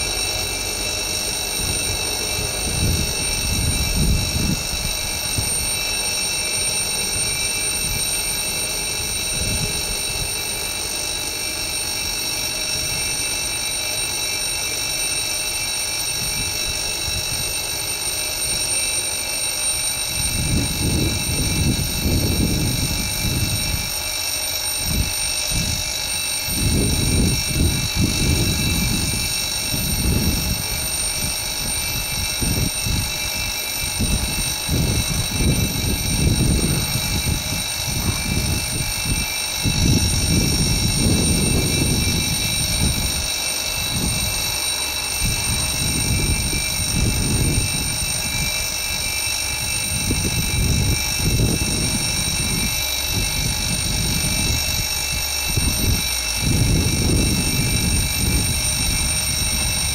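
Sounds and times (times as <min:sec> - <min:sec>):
level-crossing warning bell: 0:00.0 - 0:59.9.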